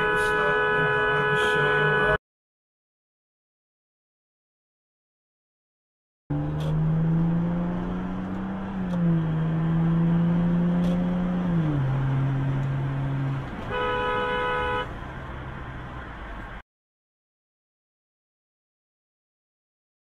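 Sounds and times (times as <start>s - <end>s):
car horn blaring: 0.0s - 2.2s, 13.7s - 15.0s
car engine droning while accelerating: 6.3s - 16.6s.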